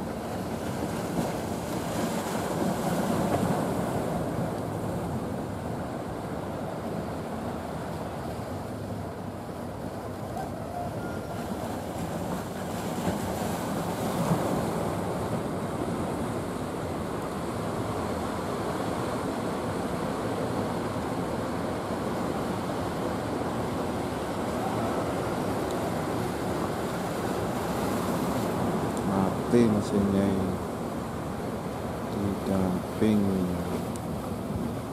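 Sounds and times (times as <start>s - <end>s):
surf and breaking waves: 0.0s - 34.9s
boat engine drone: 4.9s - 12.7s, 14.9s - 34.9s.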